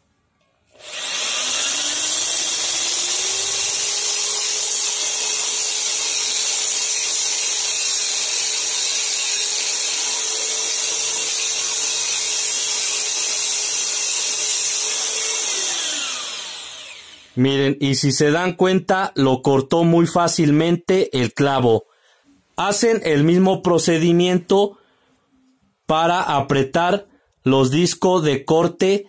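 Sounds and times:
electric drill cutting metal: 0.7 - 17.4.

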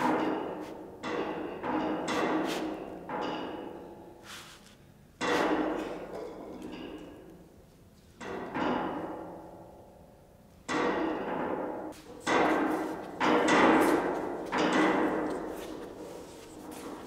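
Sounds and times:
steel beams clanking: 10.7 - 17.0.

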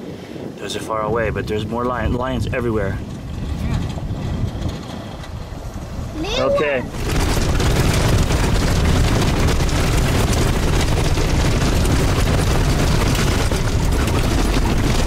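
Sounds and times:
engine and tyres rumbling on gravel: 1.1 - 15.0
car body rattling: 6.9 - 15.0.

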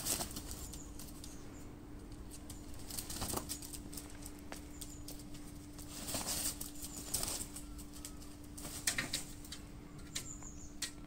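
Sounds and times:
peacock wings flapping: 0.0 - 1.3, 2.3 - 9.4.

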